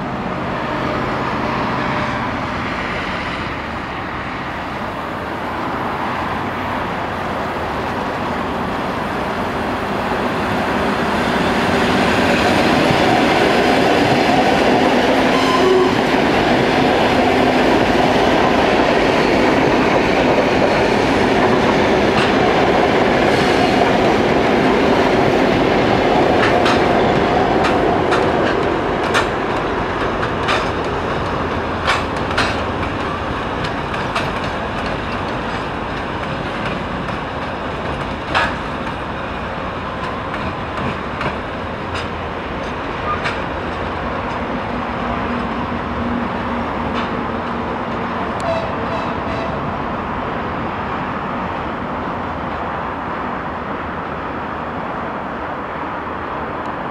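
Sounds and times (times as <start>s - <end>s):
trains passing rumble: 0.0s - 56.9s
wheels clacking over rail joints: 16.3s - 49.7s.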